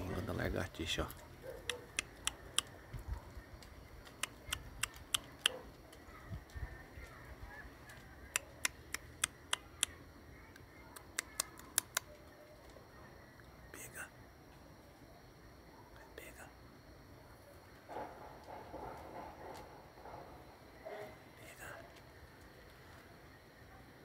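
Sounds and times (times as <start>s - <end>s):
tongue clicks: 1.6s - 2.8s, 4.0s - 5.7s, 8.3s - 12.3s.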